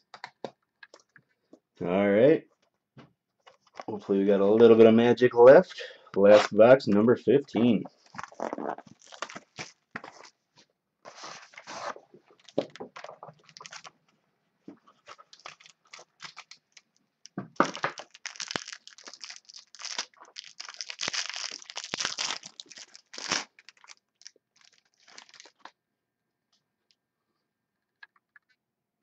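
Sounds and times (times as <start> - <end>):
plastic wrapping crackling: 7.9 - 10.2, 11.5 - 14.0, 14.9 - 25.7.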